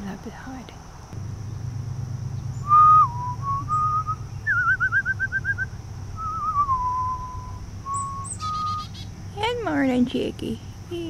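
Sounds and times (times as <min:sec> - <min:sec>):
person whistling: 0:02.6 - 0:08.9.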